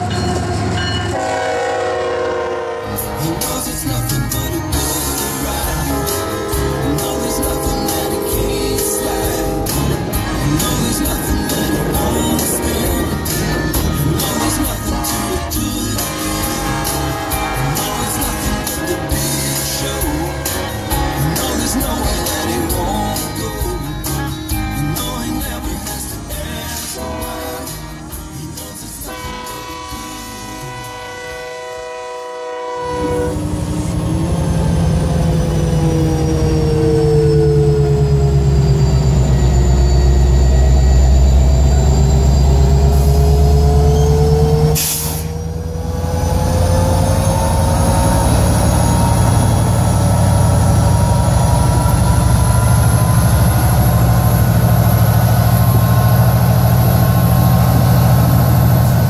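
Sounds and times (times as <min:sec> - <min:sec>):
train horn chord: 0:00.0 - 0:24.2, 0:25.0 - 0:59.0
locomotive engine rumble: 0:00.0 - 0:59.0
whining sliding tones: 0:00.0 - 0:59.0.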